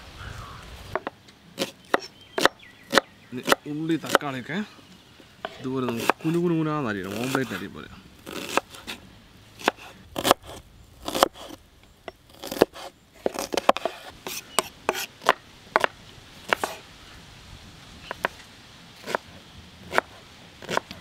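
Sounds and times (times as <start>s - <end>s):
knife chopping on wooden board: 1.0s - 4.2s, 5.4s - 6.4s, 12.4s - 15.9s, 16.5s - 16.8s, 19.9s - 20.9s.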